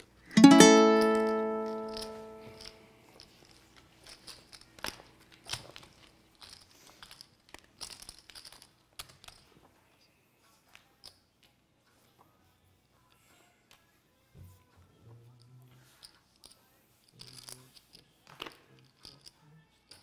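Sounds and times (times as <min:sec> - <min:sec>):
plucked string chord: 0:00.3 - 0:02.6.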